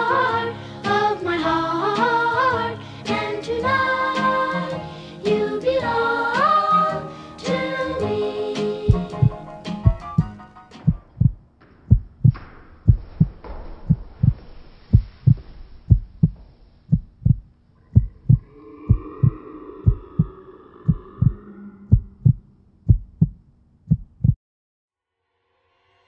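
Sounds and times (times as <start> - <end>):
heartbeat thumping: 8.9 - 24.4
drawn-out wavering sound: 17.8 - 22.8.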